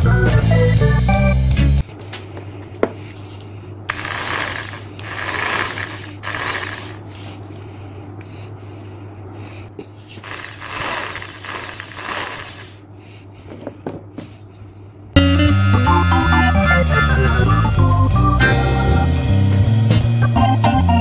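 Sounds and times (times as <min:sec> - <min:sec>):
electric jigsaw whining: 0:03.9 - 0:07.3, 0:10.2 - 0:12.8, 0:15.2 - 0:17.8.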